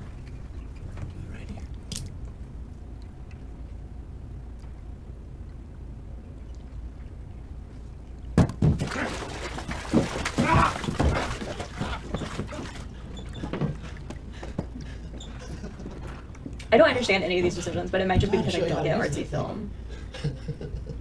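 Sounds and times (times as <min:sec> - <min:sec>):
low room hum: 0:00.0 - 0:21.0
water splashing in a bathtub: 0:08.2 - 0:14.1
knocks: 0:08.4 - 0:09.0.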